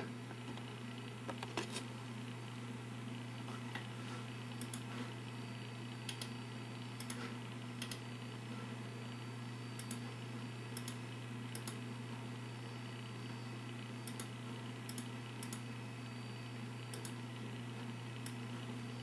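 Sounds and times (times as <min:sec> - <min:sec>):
low electrical hum: 0:00.0 - 0:19.0
sharp light clicks: 0:06.1 - 0:06.3, 0:10.8 - 0:11.8, 0:16.9 - 0:17.2.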